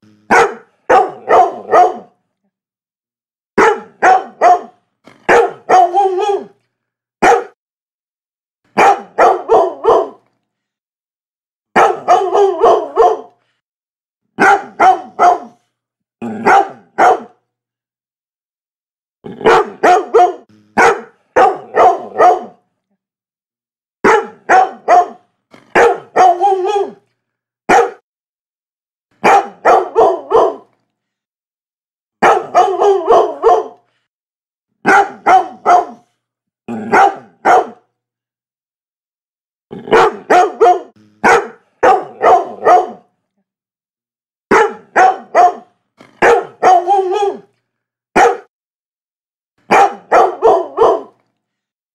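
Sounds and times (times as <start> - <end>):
dog barking: 0.3 - 2.2, 3.6 - 6.6, 7.2 - 7.6, 8.7 - 10.3, 11.7 - 13.4, 14.4 - 15.6, 16.3 - 17.4, 19.4 - 22.6, 24.0 - 27.0, 27.7 - 28.0, 29.2 - 30.7, 32.2 - 33.9, 34.8 - 36.1, 36.8 - 37.9, 39.8 - 43.1, 44.5 - 47.5, 48.1 - 48.5, 49.6 - 51.2.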